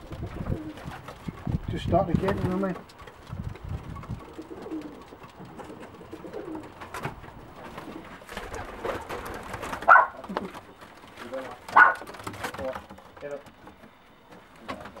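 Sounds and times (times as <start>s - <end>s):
pigeons cooing: 0.0s - 1.6s, 2.5s - 12.4s
wing flutter: 0.0s - 15.0s.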